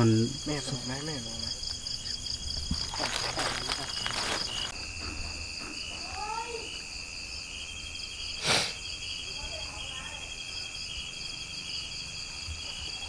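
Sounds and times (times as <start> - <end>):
crickets chirring: 0.0 - 13.0
footsteps through undergrowth: 2.6 - 4.8.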